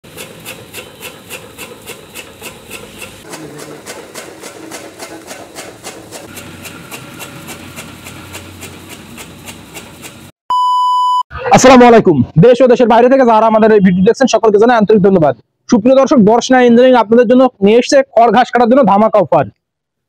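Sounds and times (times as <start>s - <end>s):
chaff cutter chopping: 0.0s - 10.3s.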